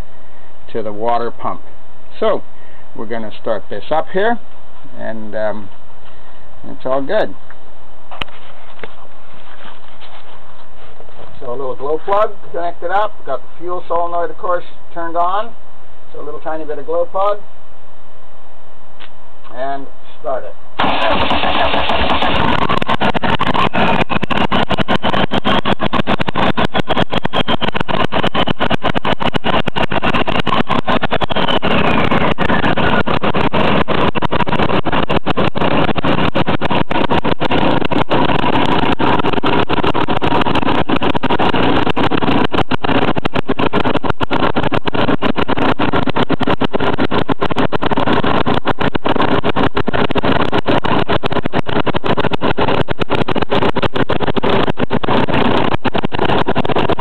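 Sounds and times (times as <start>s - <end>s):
diesel engine running loudly: 0.0s - 7.3s, 20.8s - 57.0s.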